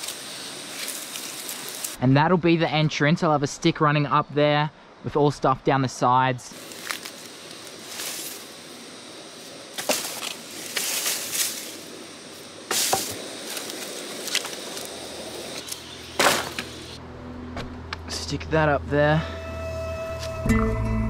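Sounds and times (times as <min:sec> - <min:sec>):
rustling in dry leaves: 0:00.0 - 0:02.0, 0:06.5 - 0:17.0.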